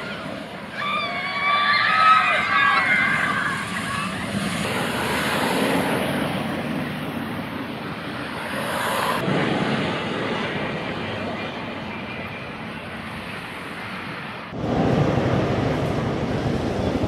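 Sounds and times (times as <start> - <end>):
riders screaming: 0.0 - 4.8
roller coaster train rumbling on track: 0.0 - 17.0.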